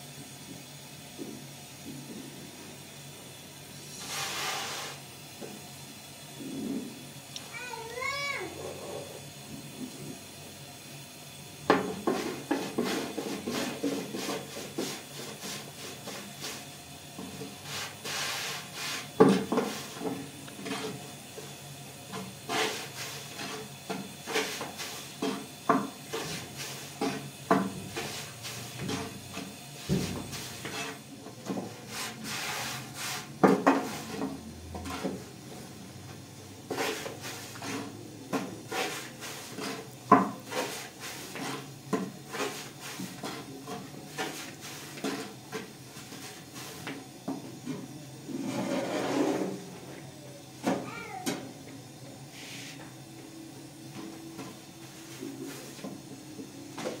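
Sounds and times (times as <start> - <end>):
household objects knocking and scraping: 33.4 - 35.2.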